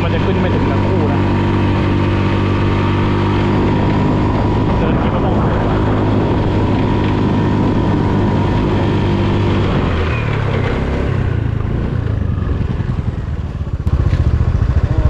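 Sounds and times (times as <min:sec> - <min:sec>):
scooter engine under throttle: 0:00.0 - 0:15.0.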